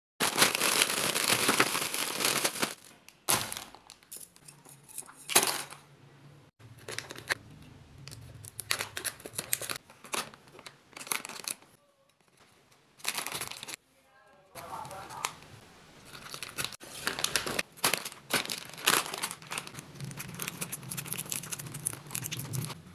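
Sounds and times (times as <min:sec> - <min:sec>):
plastic wrappers crinkling: 0:00.2 - 0:04.5, 0:06.7 - 0:07.4, 0:08.1 - 0:13.8, 0:16.0 - 0:22.8.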